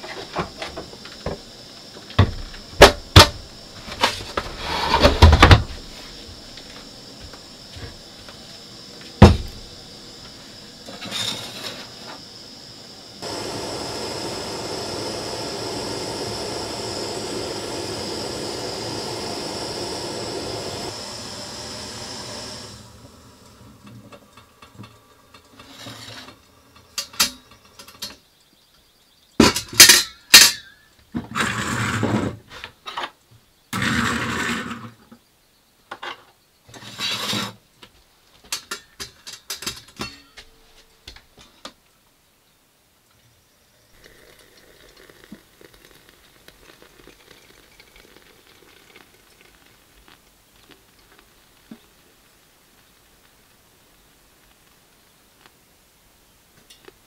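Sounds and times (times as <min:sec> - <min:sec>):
camp stove burner hissing: 0:00.0 - 0:28.0, 0:43.6 - 0:55.7
mug and pot clinking: 0:44.0 - 0:49.6.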